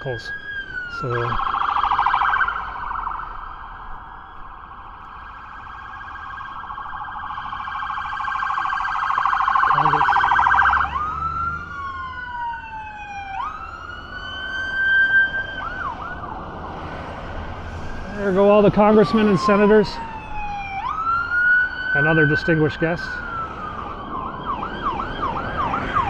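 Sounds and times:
warbling siren yelp: 0.0 - 16.9, 17.8 - 26.0
rising and falling siren wails: 0.0 - 26.0
short siren chirps: 0.8 - 11.8.

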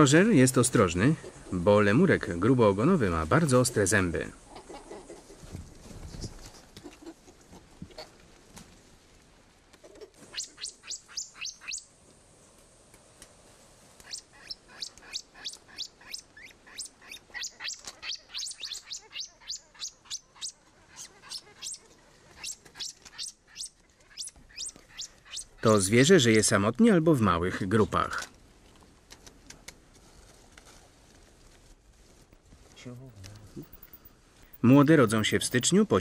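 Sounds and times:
high-pitched chirping calls: 10.3 - 11.9, 14.1 - 21.8.

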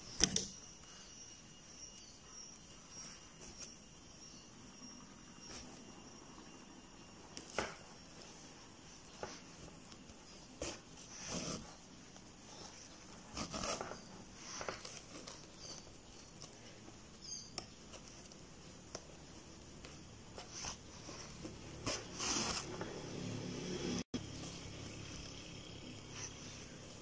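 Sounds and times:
yarn rustling through stitches: 7.4 - 27.0.

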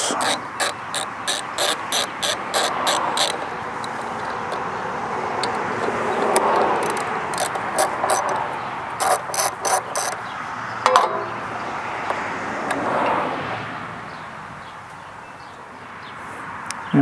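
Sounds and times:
socket ratchet clicking: 0.0 - 10.2.

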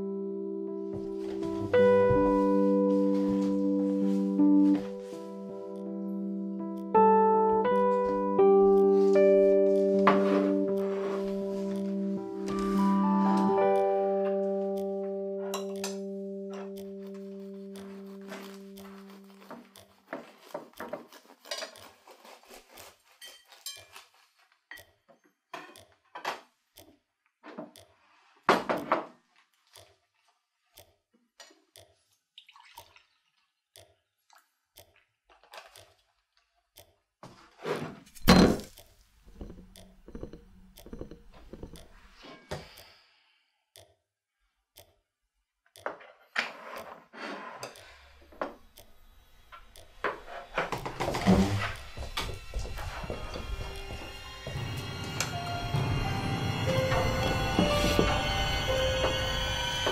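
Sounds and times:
cutlery clinking on crockery: 20.3 - 22.4, 23.2 - 24.1.

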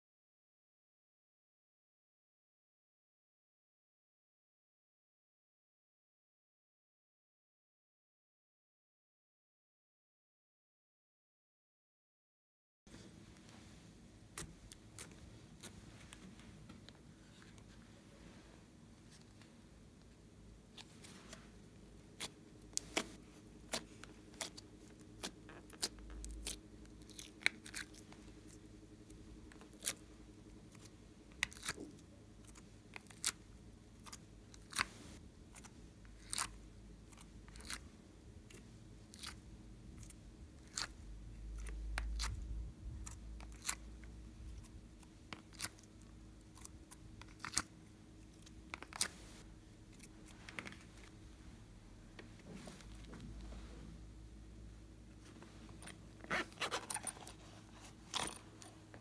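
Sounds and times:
soft handling rumble: 48.4 - 59.0.

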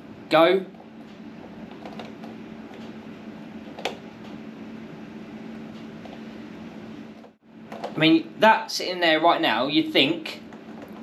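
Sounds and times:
steady low hum: 0.0 - 11.0
phone handling noise: 7.2 - 8.0.

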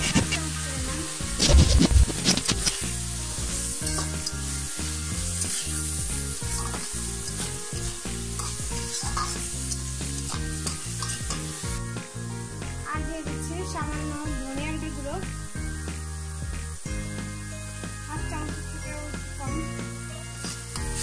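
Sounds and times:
spatula scraping metal pan: 0.0 - 11.8
shrimp and onion sizzling in oil: 0.0 - 21.0.

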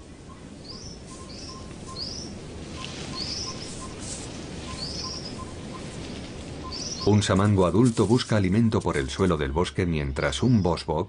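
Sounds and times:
steady low hiss: 0.0 - 11.0
bird chirping: 0.1 - 4.0, 4.6 - 7.3.

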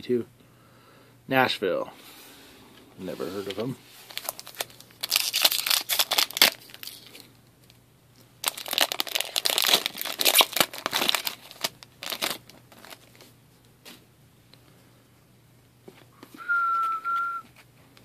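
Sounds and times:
foil wrapper tearing and crinkling: 4.1 - 7.2, 8.4 - 13.2.

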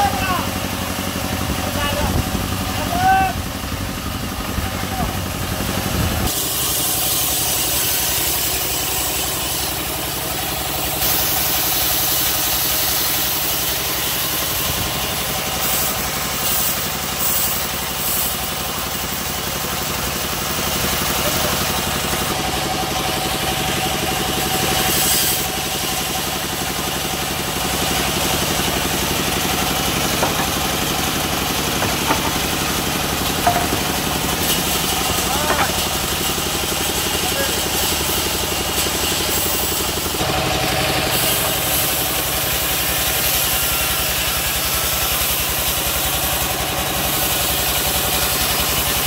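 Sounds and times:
band saw mill running: 0.0 - 49.0
light knocks: 31.8 - 32.5.

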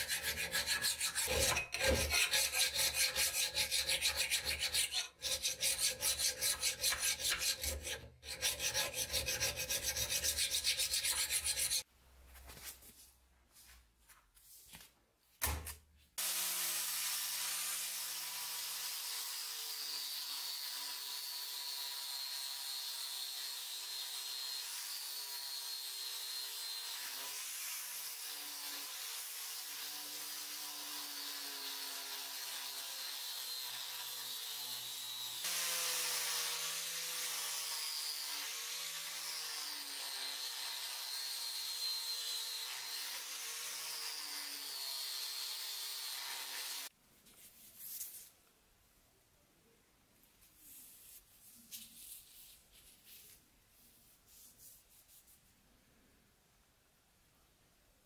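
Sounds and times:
angle grinder sanding metal: 0.0 - 11.9, 30.2 - 46.9
hand file rasping on metal: 0.0 - 11.9.

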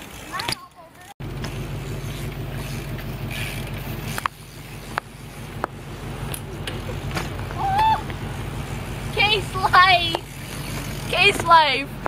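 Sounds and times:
bike rolling on concrete: 0.0 - 12.0
bike knocking against concrete: 2.6 - 8.2, 10.0 - 11.8.

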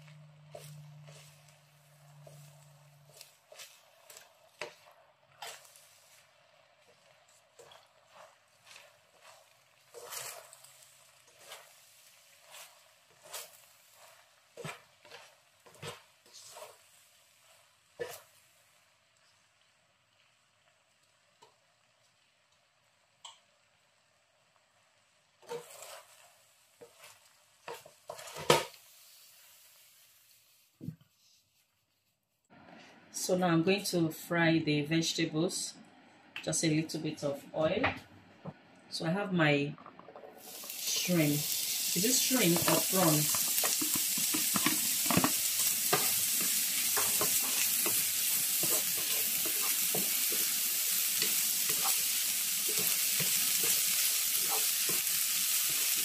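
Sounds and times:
spatula scraping rice in pan: 0.1 - 18.4, 25.4 - 29.3, 40.4 - 56.0
hot pan hissing: 40.4 - 56.0.

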